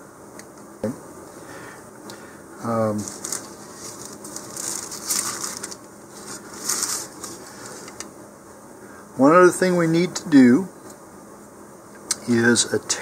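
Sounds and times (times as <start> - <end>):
plastic parachute crinkling: 3.0 - 8.0.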